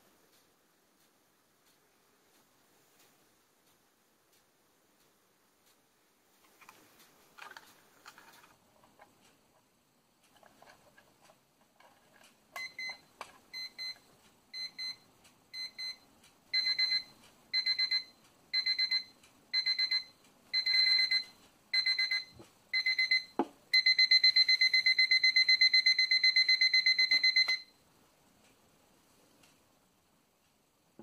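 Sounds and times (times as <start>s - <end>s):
alarm clock beeping: 12.6s - 27.8s.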